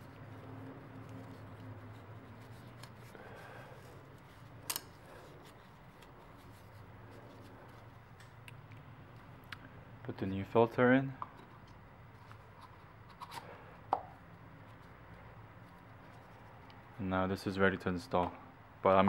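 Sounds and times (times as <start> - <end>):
plastic cap clicking and scraping: 11.2 - 14.1.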